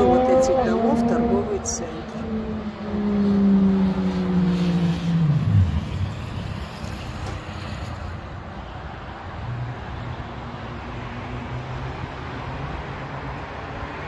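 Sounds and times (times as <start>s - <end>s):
low vehicle engine hum: 0.0s - 10.1s
road traffic: 0.0s - 14.0s.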